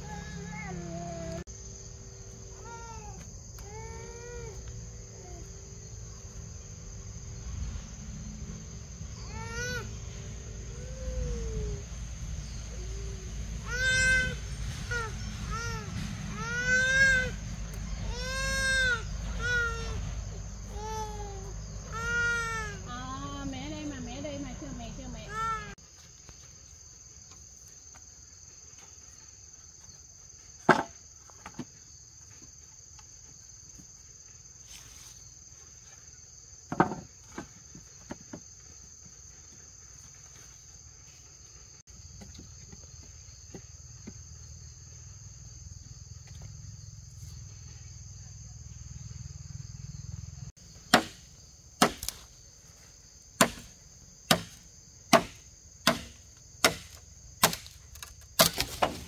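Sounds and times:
insects whining: 0.0 - 59.0
sharp wooden knocks: 50.9 - 51.2, 53.4 - 53.7, 54.3 - 57.7
machete chopping bamboo: 50.9 - 52.3, 53.4 - 59.0.

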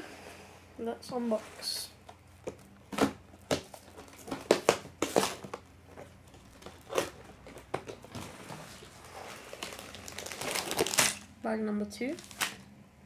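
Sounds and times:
cardboard tearing and crinkling: 6.4 - 11.3, 12.2 - 12.6.

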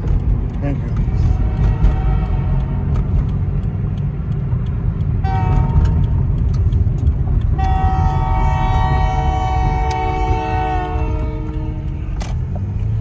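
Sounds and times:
car engine and tyres rumbling: 0.0 - 13.0
train horn blasts: 5.2 - 6.1, 7.6 - 12.2.

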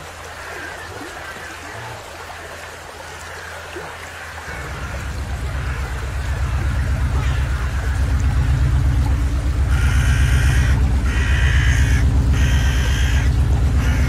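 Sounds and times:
water trickling and dripping: 0.0 - 14.0
fast-pulsing bass drone: 4.5 - 14.0
low steady hum: 4.5 - 14.0.

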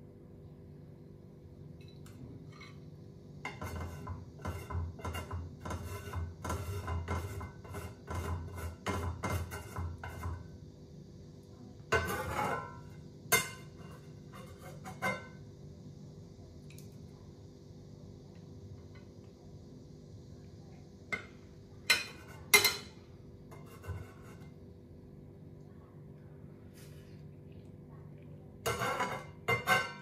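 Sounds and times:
metal utensil scraping frying pan: 3.4 - 10.5, 11.9 - 15.4, 21.9 - 24.6, 28.6 - 30.0.

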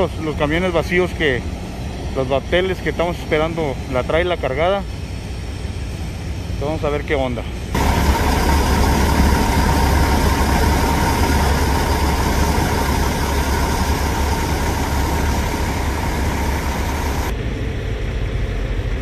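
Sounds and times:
engine whine: 0.0 - 19.0
diesel engine idling: 7.6 - 17.3.

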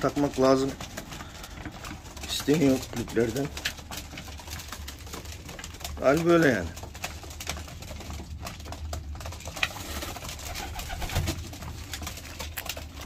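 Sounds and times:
pigeons cooing: 9.6 - 11.5.

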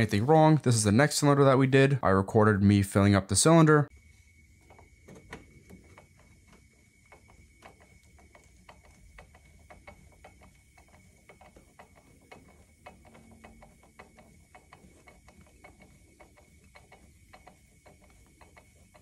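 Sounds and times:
faint ticking clicks: 5.6 - 19.0.

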